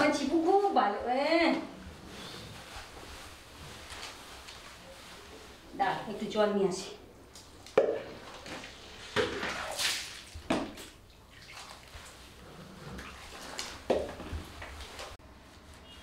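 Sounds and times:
wet fur rubbed by hand: 1.8s - 5.7s
water sloshing and splashing: 7.8s - 15.2s.

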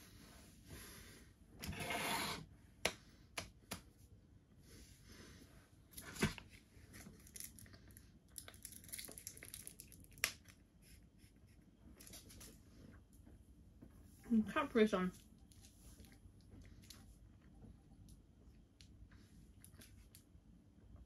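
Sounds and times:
plastic wrapper tearing and crinkling: 6.9s - 10.6s.

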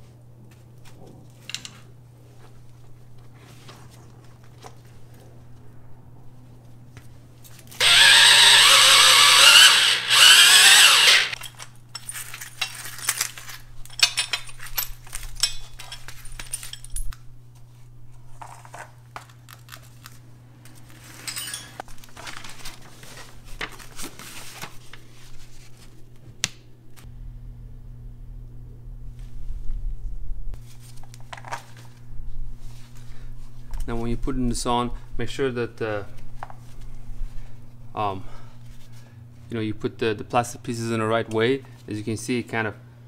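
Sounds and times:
handheld power tool running: 7.8s - 11.4s
metal parts clinking and rattling: 7.9s - 17.2s, 21.0s - 21.9s.

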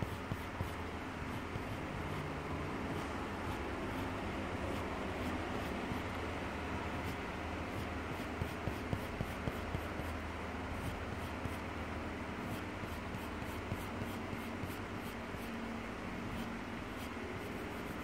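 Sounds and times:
pencil scratching on paper: 0.0s - 2.3s, 7.0s - 10.2s, 12.4s - 15.5s, 16.3s - 18.0s
steady low hum: 0.0s - 18.0s.

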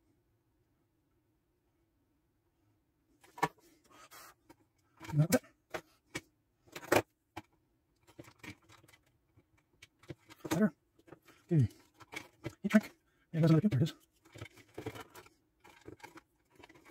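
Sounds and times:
faint steady hum: 0.0s - 16.9s.

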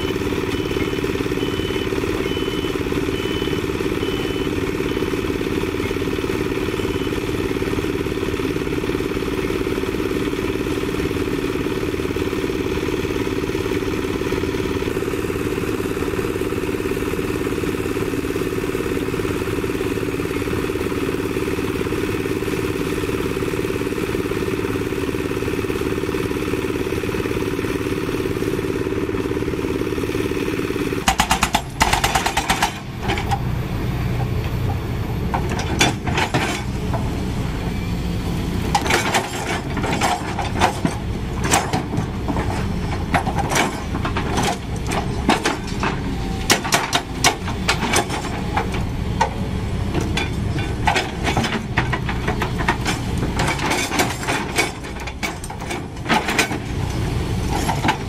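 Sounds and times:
roller engine running: 0.0s - 58.0s
hydraulic breaker hammering rock: 31.0s - 33.0s.

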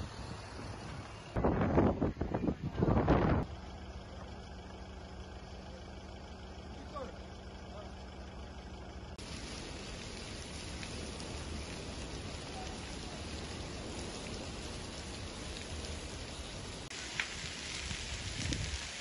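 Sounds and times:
fire hose spraying water: 0.0s - 2.0s, 9.1s - 19.0s
fire crackling: 0.0s - 19.0s.

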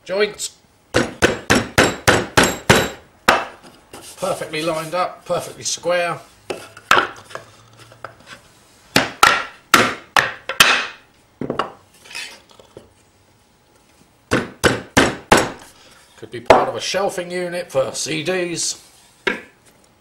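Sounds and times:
wooden boards knocking together: 9.0s - 11.8s.

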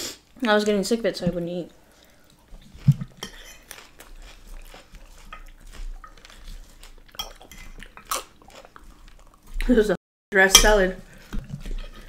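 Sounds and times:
chewing salad: 0.3s - 10.0s, 10.7s - 12.0s.

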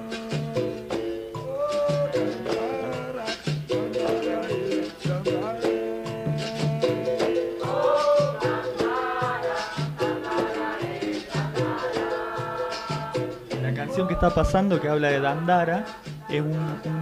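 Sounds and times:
shaker: 0.0s - 14.9s
person singing: 0.0s - 17.0s
steady drum beat: 0.0s - 17.0s.

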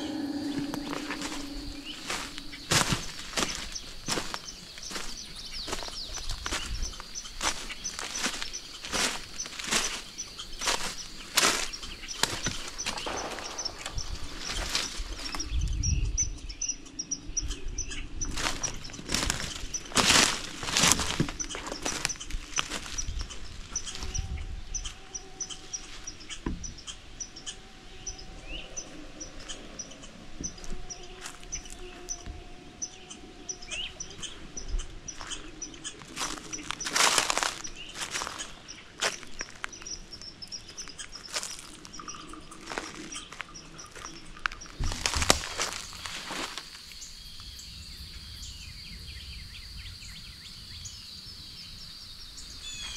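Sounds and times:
footsteps crunching on forest floor: 0.0s - 15.6s, 18.3s - 24.2s, 30.3s - 34.4s, 35.1s - 47.6s.

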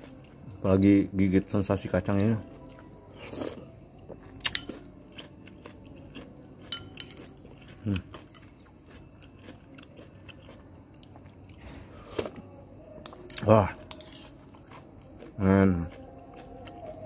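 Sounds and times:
chewing with small crunches: 0.0s - 17.0s
metal spoon clinking in bowl: 4.4s - 4.8s, 6.7s - 7.4s, 13.0s - 14.4s.

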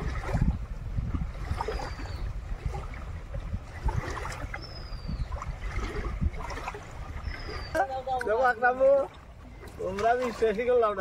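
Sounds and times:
wind rumble on microphone: 0.0s - 8.6s
river water lapping on rocks: 0.0s - 11.0s.

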